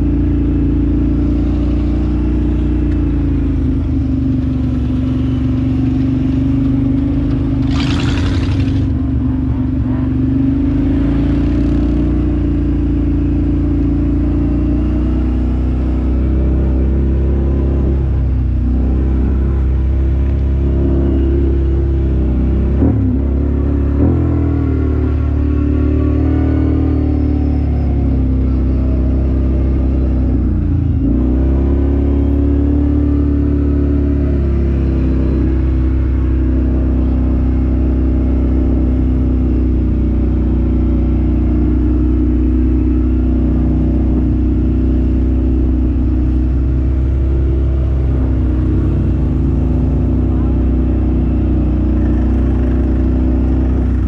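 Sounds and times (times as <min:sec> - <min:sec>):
vehicle engine running under load: 0:00.0 - 0:54.0.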